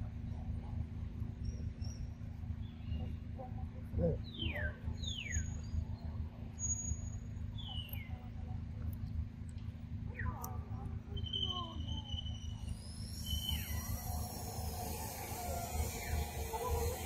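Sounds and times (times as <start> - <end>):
forest birds calling: 4.0 - 8.2, 11.1 - 17.0
small chirps: 10.1 - 17.0
falling whistles: 11.2 - 17.0
thin high whistles: 11.2 - 17.0.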